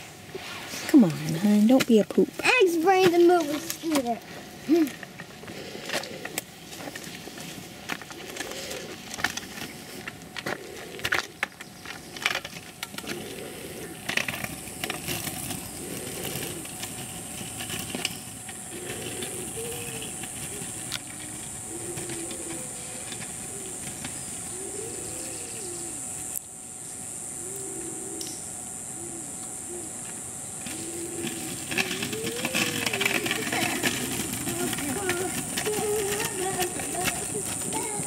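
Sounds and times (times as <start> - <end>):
scooter wheels rolling on gravel: 0.0 - 27.8, 29.6 - 38.0
footsteps on gravel: 30.7 - 38.0.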